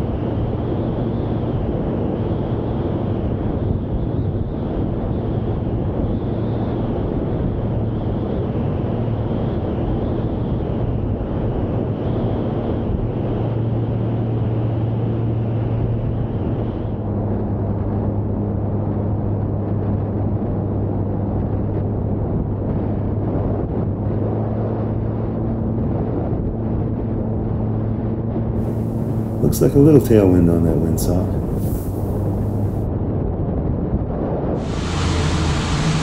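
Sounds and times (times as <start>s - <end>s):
wind rush over microphone: 0.0s - 36.0s
plane engine droning: 28.6s - 32.8s, 34.6s - 36.0s.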